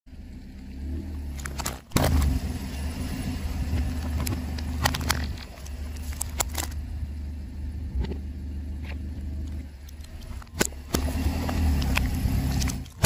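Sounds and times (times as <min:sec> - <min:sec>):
car engine running slowly: 0:00.1 - 0:13.0
plastic syringes cracking under tyre: 0:03.9 - 0:06.8.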